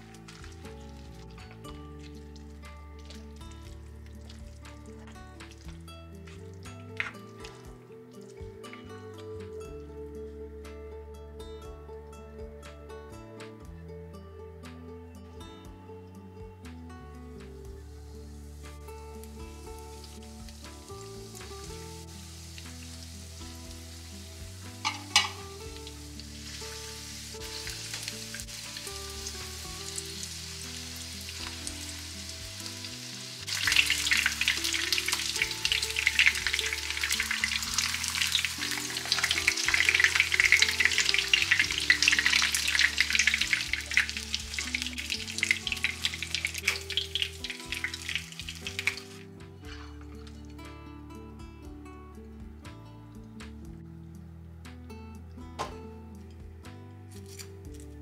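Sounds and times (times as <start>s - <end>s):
chicken deep-frying in oil: 0.0s - 8.6s, 17.8s - 49.9s.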